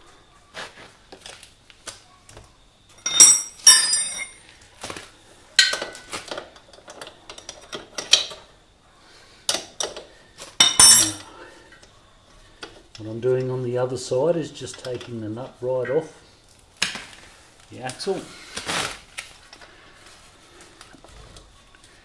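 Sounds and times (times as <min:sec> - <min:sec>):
metal clinking and clattering: 0:02.9 - 0:04.4, 0:05.6 - 0:08.4, 0:10.6 - 0:11.4.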